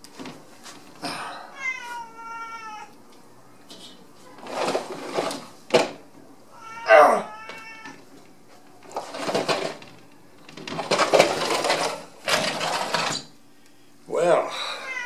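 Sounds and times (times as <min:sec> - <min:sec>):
cat meowing: 0:01.5 - 0:02.9, 0:06.6 - 0:08.0, 0:14.8 - 0:15.0.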